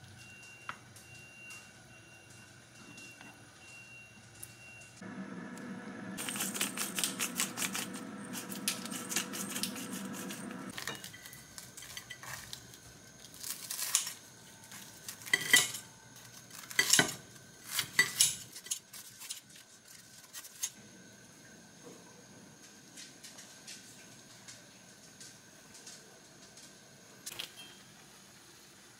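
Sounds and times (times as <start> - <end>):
liquid simmering and crackling: 5.2 - 20.8, 21.4 - 28.9
cutting through crisp cutlet: 6.2 - 10.7.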